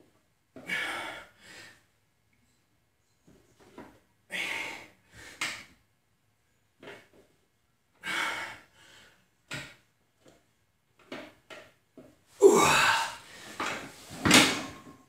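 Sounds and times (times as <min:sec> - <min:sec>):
man exhaling hard: 0:12.4 - 0:13.6.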